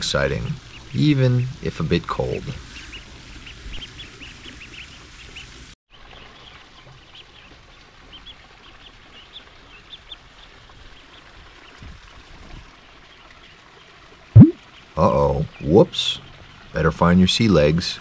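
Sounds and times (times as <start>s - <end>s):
ducklings peeping: 0.2s - 11.9s.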